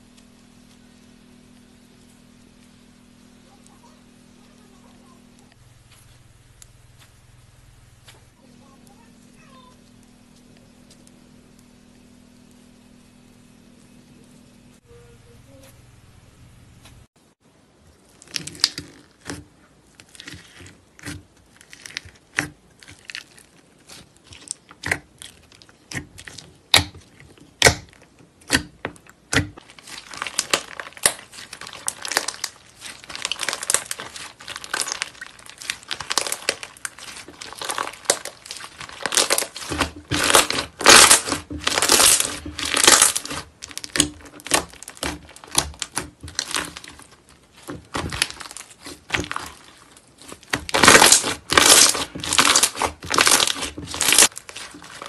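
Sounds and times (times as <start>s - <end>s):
slime clicking and crackling: 18.0s - 55.0s
slime crackling being stretched: 18.0s - 55.0s.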